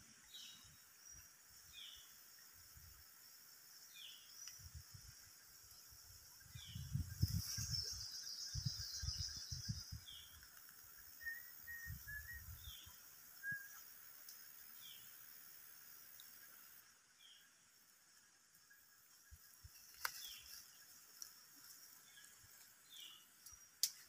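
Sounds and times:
whistled notes: 11.2s - 12.7s, 13.4s - 13.8s.

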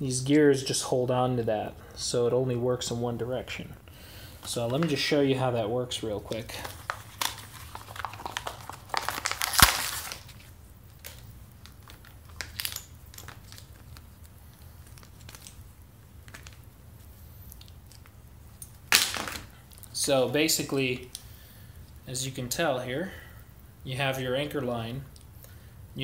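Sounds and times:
packaging rustling and crinkling: 6.1s - 20.0s.

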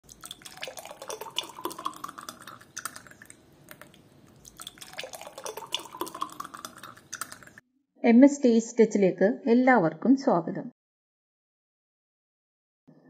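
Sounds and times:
juice pouring into glass: 0.0s - 7.6s.

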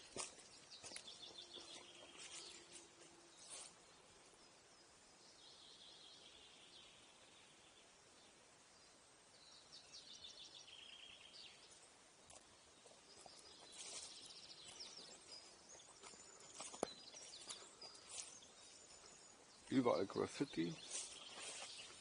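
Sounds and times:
birds trilling and chirping: 0.0s - 5.6s, 10.1s - 22.0s.

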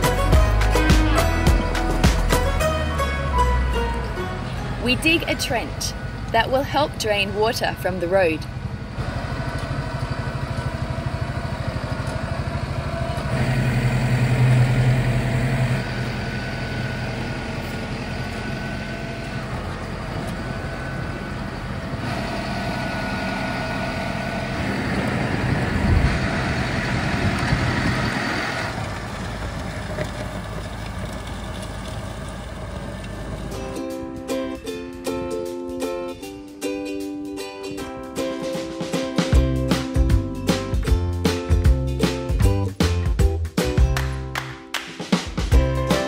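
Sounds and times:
tractor diesel engine under load: 0.0s - 34.4s.

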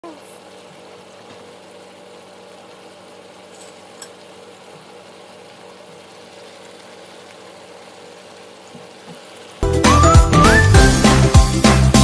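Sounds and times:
meat simmering in a frying pan: 0.0s - 12.0s.

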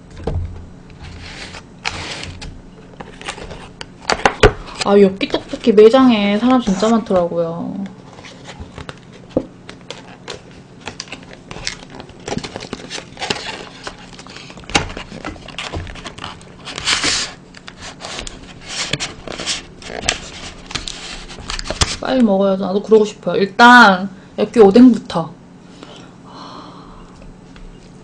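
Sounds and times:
packaging crinkling: 8.1s - 22.0s.

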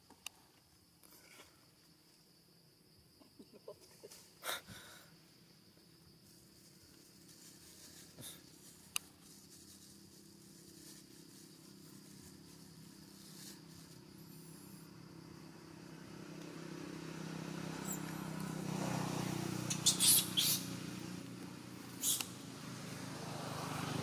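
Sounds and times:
vehicle engine running: 6.3s - 24.0s.

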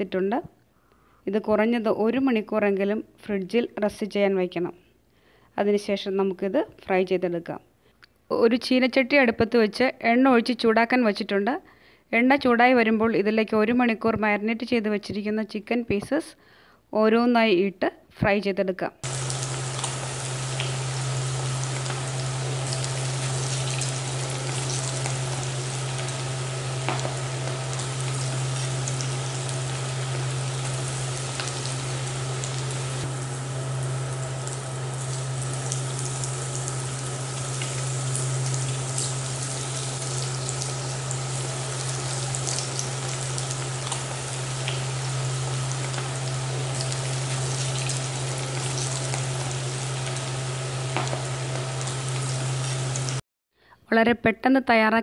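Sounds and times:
chicken deep-frying in oil: 19.0s - 53.2s
low hum: 19.0s - 53.2s.

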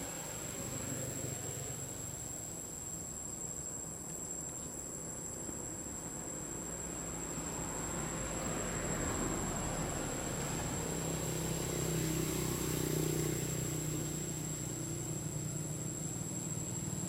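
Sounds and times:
high-pitched insect chorus: 0.0s - 17.0s.

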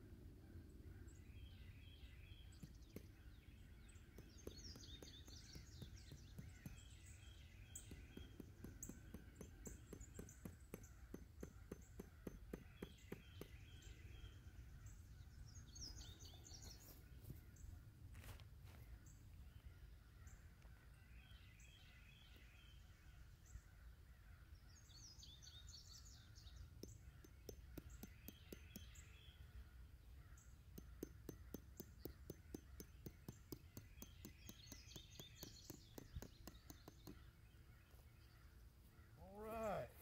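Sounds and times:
birds chirping: 0.1s - 40.0s.

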